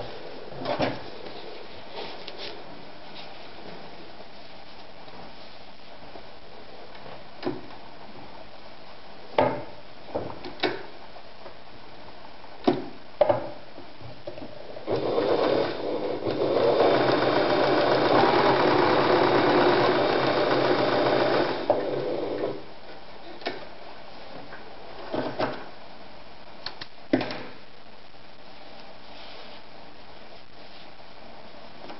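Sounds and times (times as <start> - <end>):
sewing machine running: 14.8 - 22.6.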